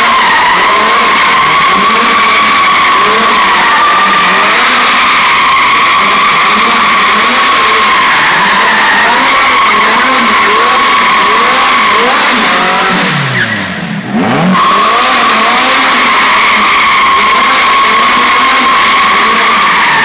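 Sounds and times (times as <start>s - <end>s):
tyres squealing on concrete: 0.0s - 13.8s, 14.4s - 20.0s
car engine revving hard: 0.0s - 20.0s.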